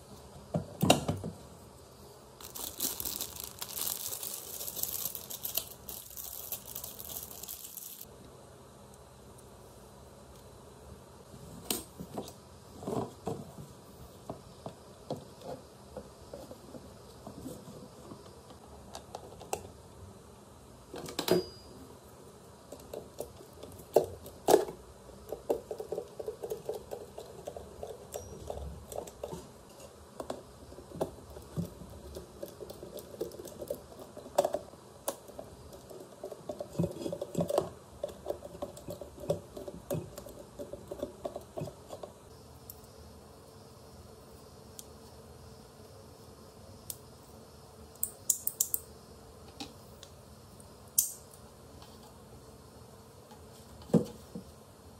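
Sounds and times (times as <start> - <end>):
plastic parts clicking and rattling: 2.4 - 8.0.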